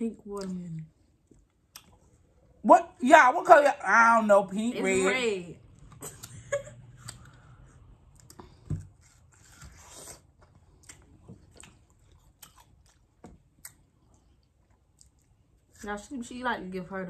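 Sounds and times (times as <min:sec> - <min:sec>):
chewing juicy fruit: 0:05.8 - 0:15.8.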